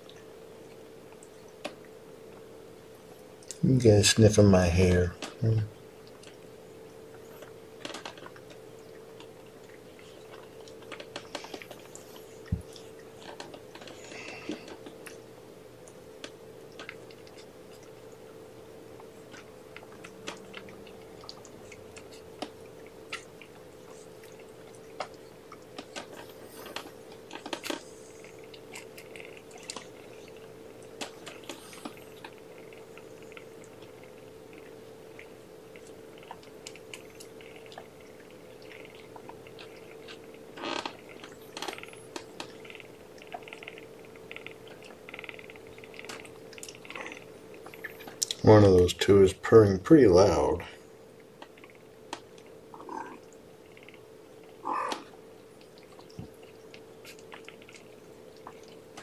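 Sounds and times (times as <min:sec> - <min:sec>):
faint steady hum: 0:00.0 - 0:59.0
soft clicks and mouth sounds: 0:19.0 - 0:48.4, 0:51.2 - 0:59.0.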